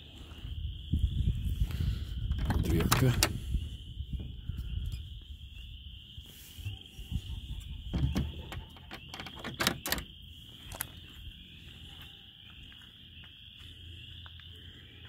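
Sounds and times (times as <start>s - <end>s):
knocks and clicks of wooden doors: 7.9s - 10.1s.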